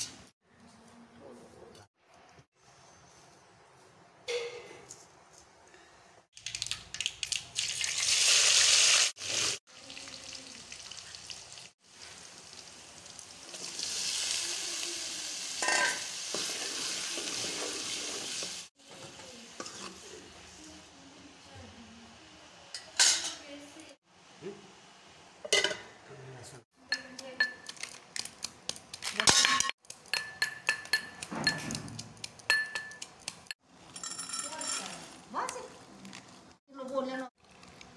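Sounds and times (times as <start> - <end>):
vegetables sizzling in hot oil: 7.8 - 20.4.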